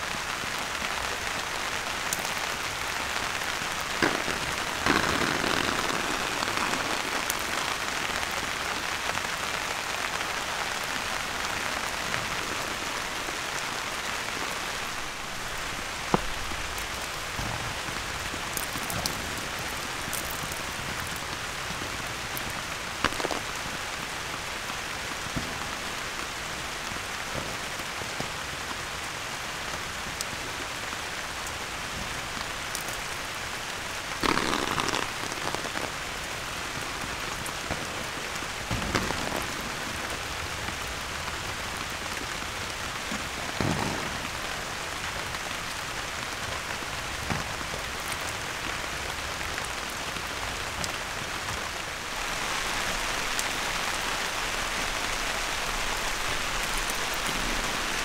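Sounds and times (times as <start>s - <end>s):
steady rain falling: 0.0s - 58.0s.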